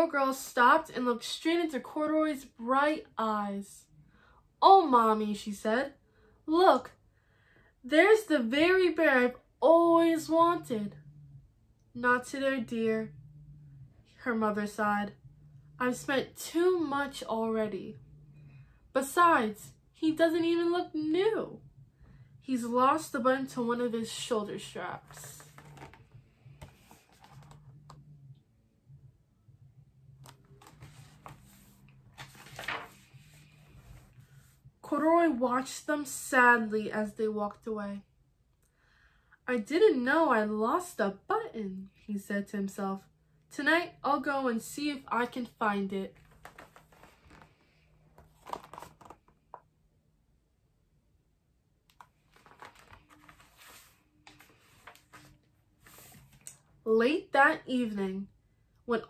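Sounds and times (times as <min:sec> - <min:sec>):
low hum: 0:10.5 - 0:19.0, 0:21.4 - 0:34.8
page turning rustle: 0:25.0 - 0:28.0, 0:30.2 - 0:34.2, 0:46.2 - 0:49.6, 0:51.9 - 0:56.6.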